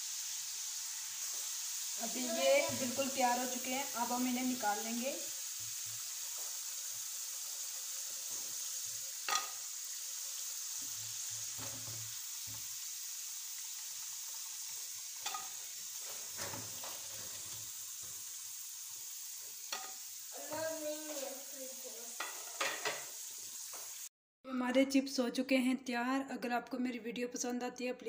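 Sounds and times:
chips sizzling in hot oil: 0:00.0 - 0:24.1
tongs clicking against pan: 0:15.2 - 0:15.5.

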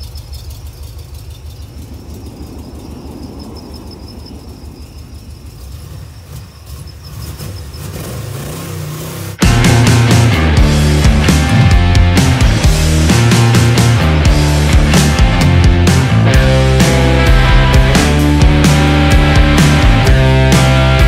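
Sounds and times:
faint high pulsing tone: 0:00.0 - 0:07.2
low vehicle rumble: 0:00.0 - 0:21.0
road noise: 0:00.0 - 0:21.0.

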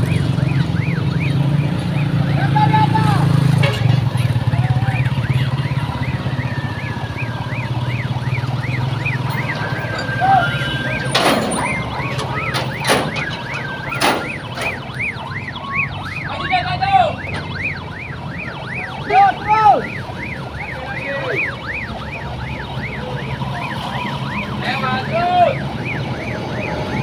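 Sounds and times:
siren yelping: 0:00.0 - 0:03.5, 0:04.3 - 0:27.0
heavy truck engine running: 0:03.0 - 0:16.3.

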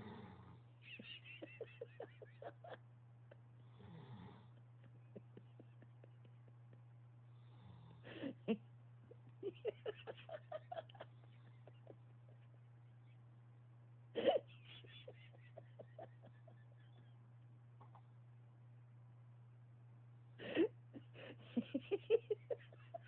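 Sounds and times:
man snoring: 0:00.0 - 0:00.6, 0:03.7 - 0:04.6, 0:07.4 - 0:08.2
steady low hum: 0:00.0 - 0:23.0.

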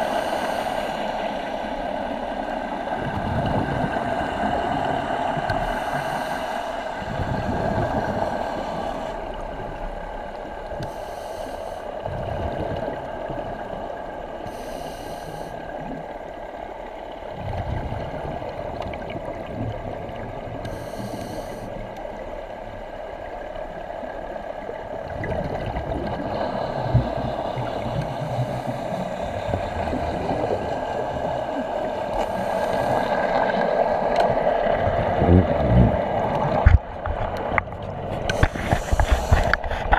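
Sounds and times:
regulator breathing hiss: 0:00.0 - 0:01.2, 0:05.6 - 0:07.0, 0:10.8 - 0:11.9, 0:14.5 - 0:15.7, 0:20.7 - 0:21.8, 0:32.1 - 0:33.3, 0:38.3 - 0:39.9
steady underwater drone: 0:00.0 - 0:39.9.

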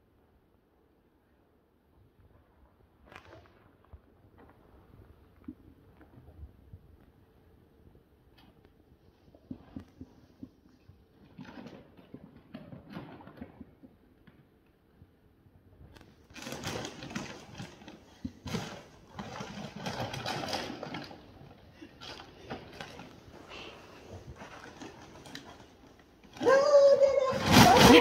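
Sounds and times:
plastic bag rustling and crackling: 0:16.1 - 0:28.0.

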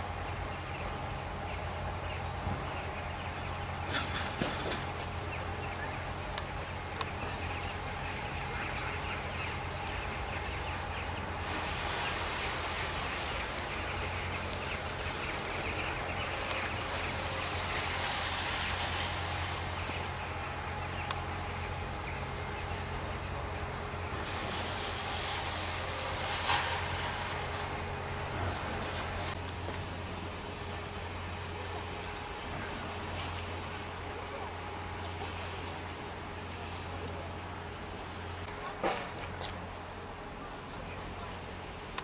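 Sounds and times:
mechanical drone with low hum: 0:00.0 - 0:42.0
hiss: 0:07.2 - 0:21.0, 0:24.0 - 0:29.4.

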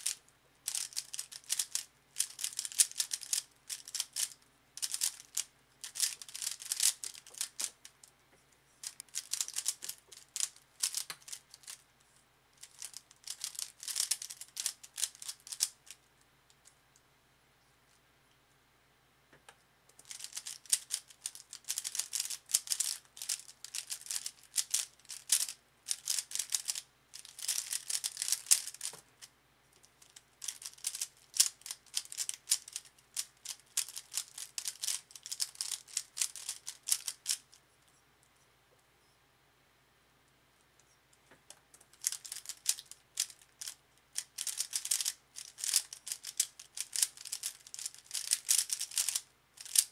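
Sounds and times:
puzzle cube clicking rapidly: 0:00.0 - 0:07.9, 0:08.8 - 0:11.8, 0:12.6 - 0:16.0, 0:19.9 - 0:29.0, 0:30.0 - 0:37.5, 0:41.8 - 0:49.9.

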